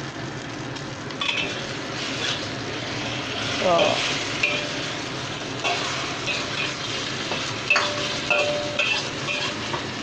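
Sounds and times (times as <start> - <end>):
noodles sizzling in oil: 0.0 - 10.0
metal spatula scraping wok: 1.2 - 2.6, 3.2 - 5.0, 5.6 - 9.9.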